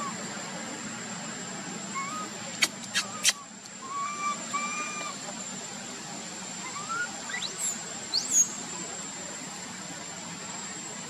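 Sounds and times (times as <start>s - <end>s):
high-pitched insect hum: 0.0s - 11.0s
rising whistled bird calls: 1.9s - 2.3s, 2.9s - 5.2s, 6.6s - 8.6s
short flat whistles: 2.6s - 3.4s.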